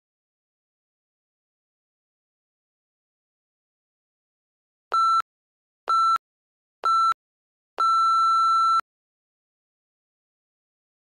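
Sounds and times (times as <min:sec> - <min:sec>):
short electronic beeps: 0:04.9 - 0:05.2, 0:05.9 - 0:06.2, 0:06.8 - 0:07.2, 0:07.8 - 0:08.8
longer electronic beep: 0:06.9 - 0:07.2, 0:07.8 - 0:08.8.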